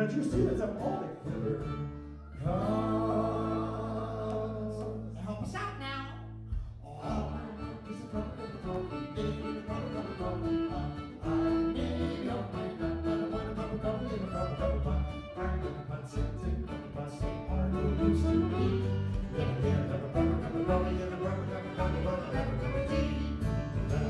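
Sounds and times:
strummed guitars: 0.0 - 24.0
fiddle playing long notes: 7.0 - 24.0.

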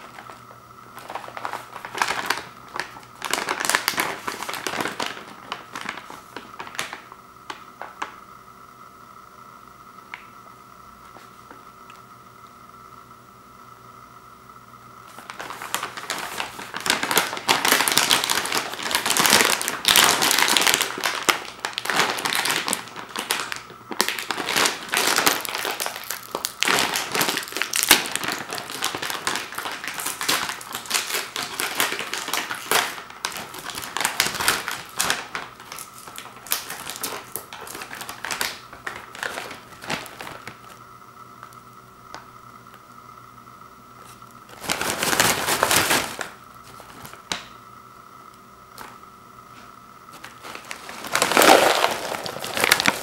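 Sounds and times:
plastic chip bag crinkling: 0.0 - 8.2, 15.1 - 40.8, 44.5 - 47.6, 50.1 - 53.0.

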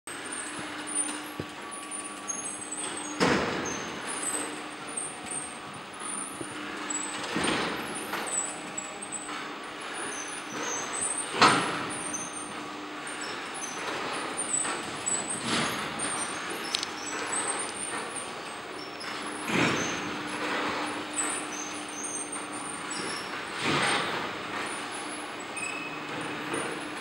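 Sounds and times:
mechanical hum and rumble: 0.1 - 27.0
short high squeaks: 24.6 - 26.8.

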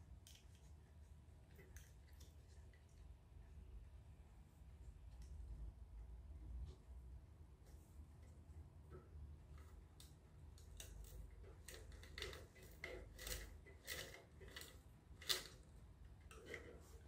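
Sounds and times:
faint scrapes of winding: 10.9 - 17.0.

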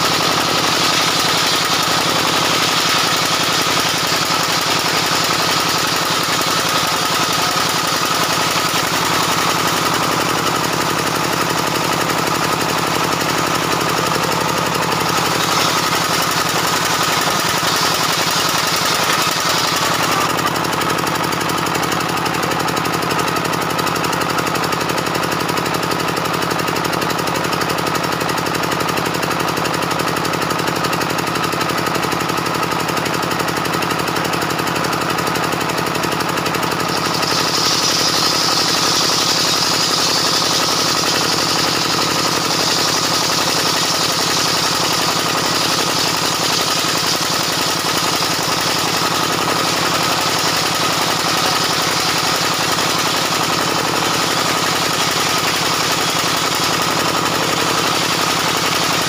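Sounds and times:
saw blade cutting timber: 0.0 - 22.4, 34.9 - 59.0
table saw running: 0.0 - 59.0.

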